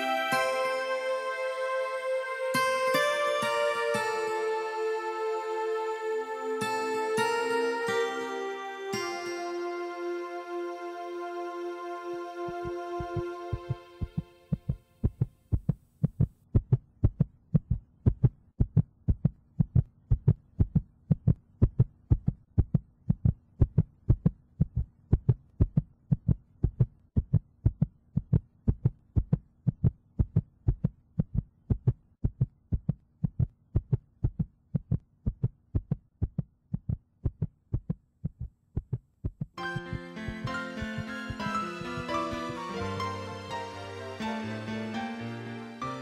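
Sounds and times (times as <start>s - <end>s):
low electronic hum: 9.1s - 15.5s
low heartbeat-like pulse: 12.6s - 40.6s.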